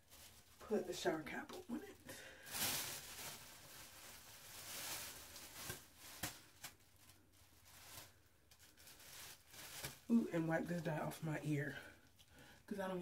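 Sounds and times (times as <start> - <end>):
plastic shower cap crinkling: 2.3 - 11.2.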